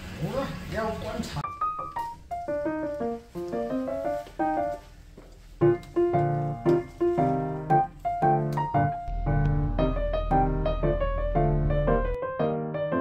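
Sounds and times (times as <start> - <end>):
piano music: 1.4 - 13.0
deep bass: 8.9 - 12.2.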